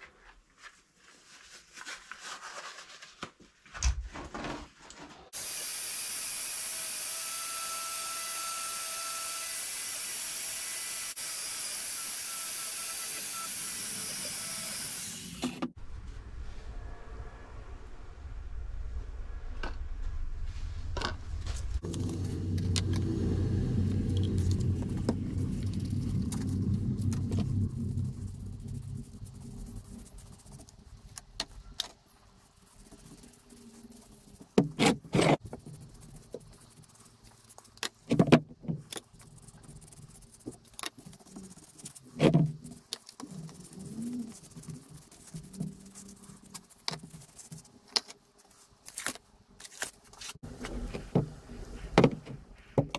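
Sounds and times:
low engine rumble: 15.8s - 31.0s.

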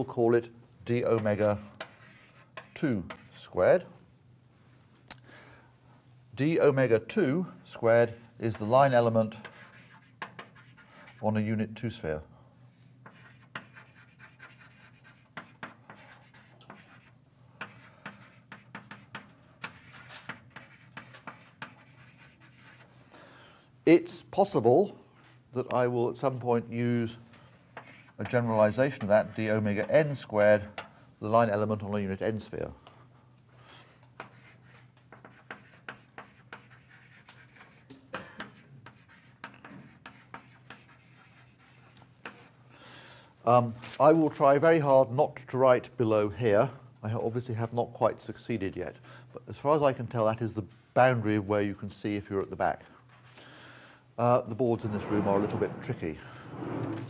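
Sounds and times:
writing taps and scratches on board: 1.2s - 3.3s, 9.4s - 11.2s, 13.0s - 22.8s, 34.2s - 42.5s.

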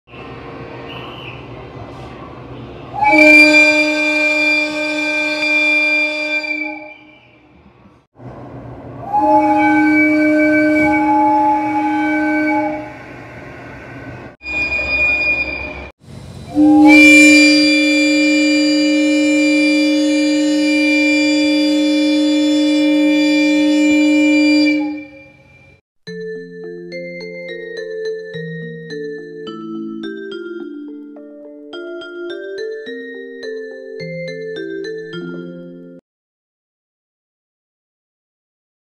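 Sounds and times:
electric train air horn blasts: 2.8s - 7.5s, 9.0s - 13.2s, 14.4s - 25.8s
short higher-toned horn: 3.0s - 7.3s, 9.0s - 13.0s, 14.4s - 25.8s.

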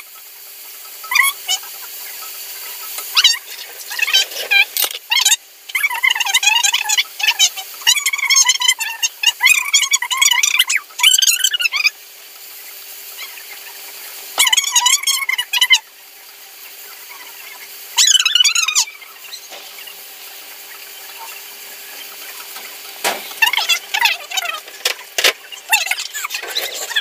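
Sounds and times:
onions sizzling in a pot: 0.0s - 27.0s
wooden spatula stirring: 3.1s - 5.0s.

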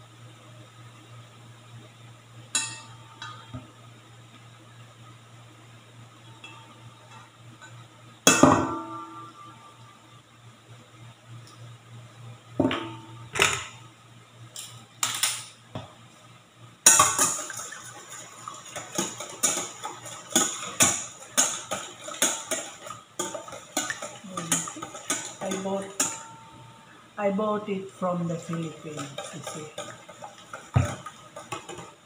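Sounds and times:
whisk beating eggs in metal bowl: 17.0s - 26.2s, 28.1s - 32.0s.

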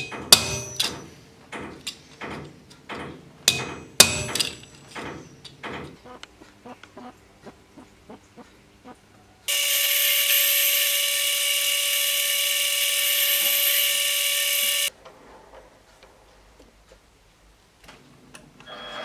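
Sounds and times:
metal lathe whining: 9.5s - 14.9s.

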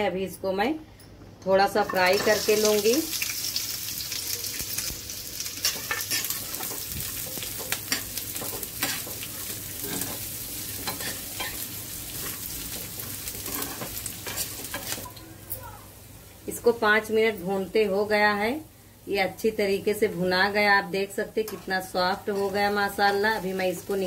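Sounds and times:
food sizzling in oil: 1.8s - 24.0s
steel spoon scraping pan: 9.8s - 11.6s.

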